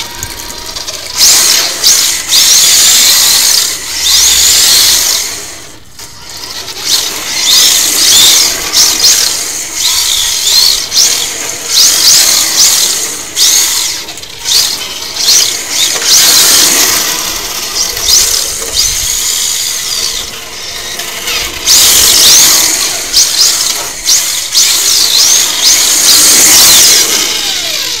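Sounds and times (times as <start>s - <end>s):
rc car motor whining: 0.0s - 28.0s
tyres sliding on asphalt: 0.0s - 28.0s.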